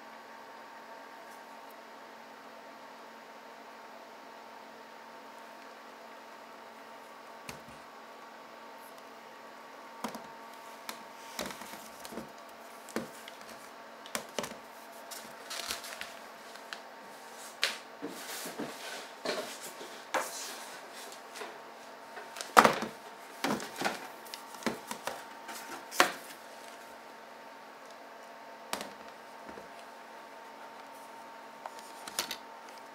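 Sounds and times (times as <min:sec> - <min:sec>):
faint steady hum: 0:00.0 - 0:32.9
objects knocking and rustling: 0:22.2 - 0:26.3.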